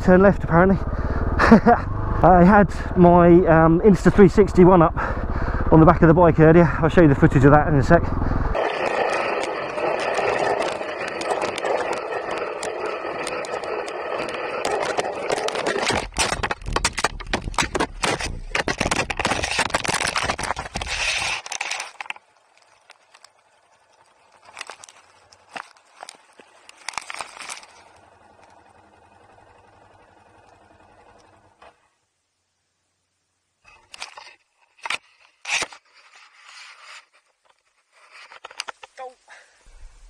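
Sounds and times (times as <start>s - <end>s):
dirt bike engine: 0.0s - 32.0s
rattling knocks and cracks: 10.6s - 22.2s.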